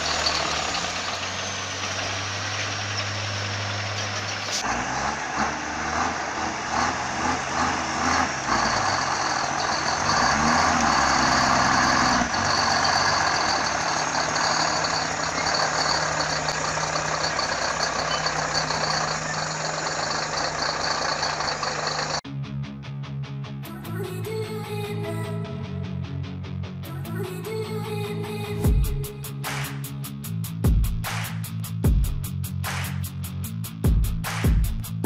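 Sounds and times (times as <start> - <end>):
heavy diesel truck engine: 0.0 - 22.2.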